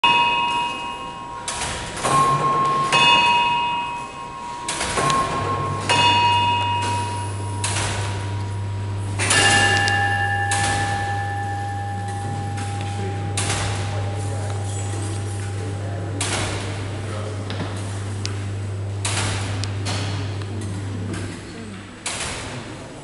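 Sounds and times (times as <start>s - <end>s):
lower-pitched bell: 0.0s - 17.4s
clock bells striking: 0.0s - 21.5s
low steady hum: 0.0s - 23.0s.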